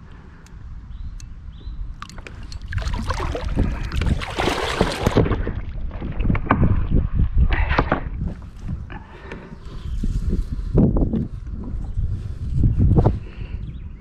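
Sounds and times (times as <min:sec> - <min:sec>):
fish thrashing and splashing: 0:02.0 - 0:05.6.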